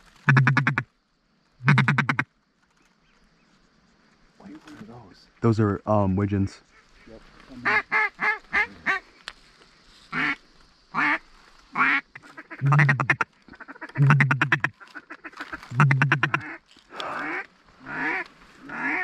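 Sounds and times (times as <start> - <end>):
duck chattering chuckle calls: 0.3 - 0.8, 1.6 - 2.2, 11.8 - 14.8, 15.7 - 16.6
ducks quacking: 0.3 - 0.8, 1.6 - 2.2, 6.7 - 9.1, 11.0 - 19.0.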